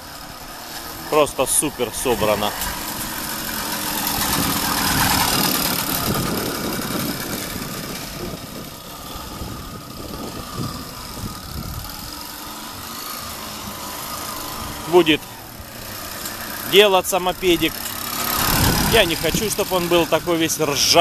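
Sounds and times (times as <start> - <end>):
two-stroke moped engine running: 0.0 - 21.0.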